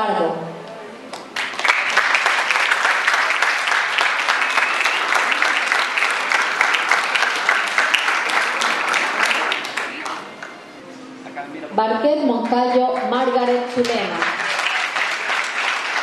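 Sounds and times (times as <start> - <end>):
audience applause: 1.2 - 10.5, 13.0 - 16.0.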